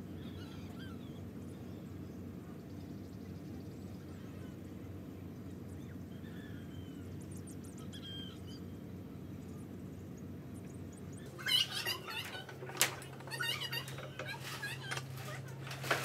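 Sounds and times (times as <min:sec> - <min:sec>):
low outdoor rumble: 0:00.0 - 0:16.0
faint high chirps and whistles: 0:05.7 - 0:08.8.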